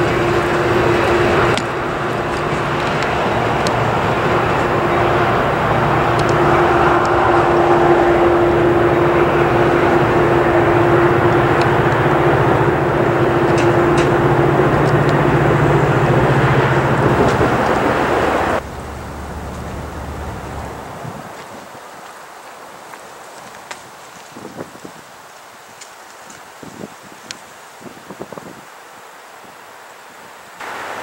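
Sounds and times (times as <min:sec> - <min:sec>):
train wheels clicking: 0:00.0 - 0:20.7
diesel train engine drone: 0:00.0 - 0:22.3, 0:30.6 - 0:31.0
rail rumble: 0:00.0 - 0:28.4, 0:30.6 - 0:31.0
windy rush: 0:00.0 - 0:31.0.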